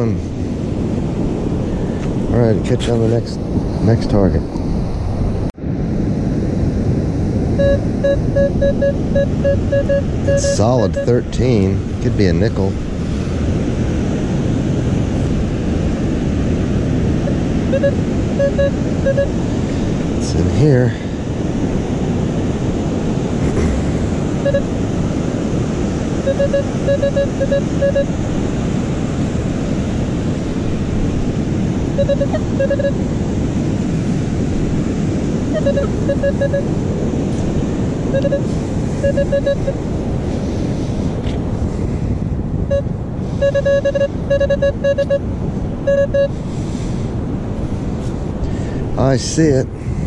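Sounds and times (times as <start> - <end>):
surf and wind: 0.0 - 50.0
metal detector beeps: 7.6 - 11.2, 17.3 - 19.4, 24.4 - 24.7, 26.2 - 28.2, 32.0 - 33.0, 35.5 - 36.7, 38.1 - 39.8, 42.7 - 45.3, 45.9 - 46.3.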